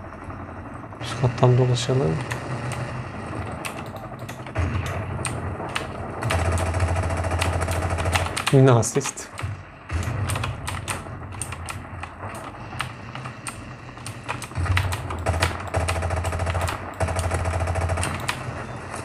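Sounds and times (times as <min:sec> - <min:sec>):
deep rumble of game sound: 0:00.0 - 0:19.0
keyboard keys clattering: 0:03.5 - 0:04.5.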